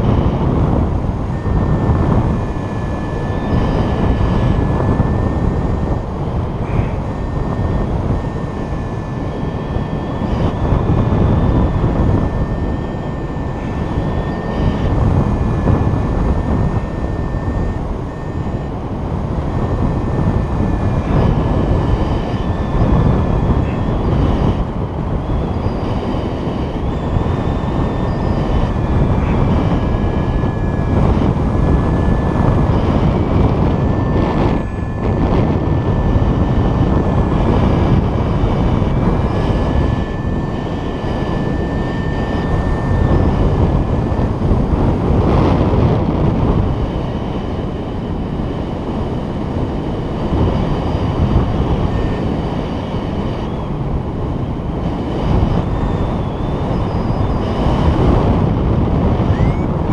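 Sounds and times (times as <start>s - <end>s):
wind buffeting microphone: 0.0s - 59.9s
faint thin whistle: 55.1s - 57.9s, 59.2s - 59.7s.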